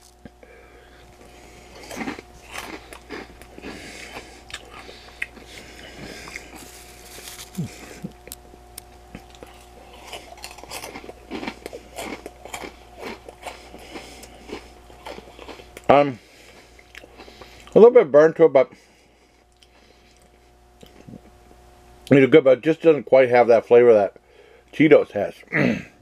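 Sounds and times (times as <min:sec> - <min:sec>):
person chewing crunchy snacks: 0:01.0 - 0:17.8, 0:19.5 - 0:21.3.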